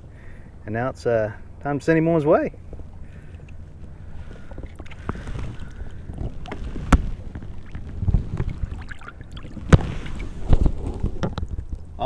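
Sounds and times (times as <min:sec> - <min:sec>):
water splashing and sloshing: 0:02.5 - 0:12.0.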